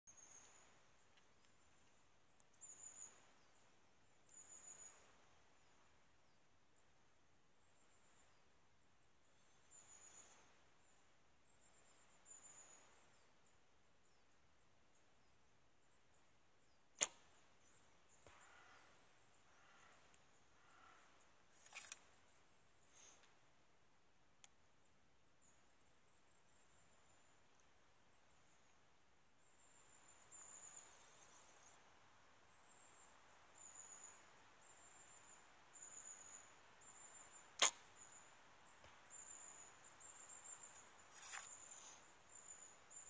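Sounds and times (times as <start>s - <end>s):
background hiss: 14.9s - 43.0s
bow string crack at release: 17.0s - 17.4s, 21.6s - 22.1s, 37.6s - 38.1s, 41.1s - 42.0s
small sharp click: 17.0s - 17.4s, 21.6s - 22.0s, 37.6s - 37.9s, 41.1s - 41.6s
high thin bird calls: 37.2s - 38.2s, 41.0s - 42.0s.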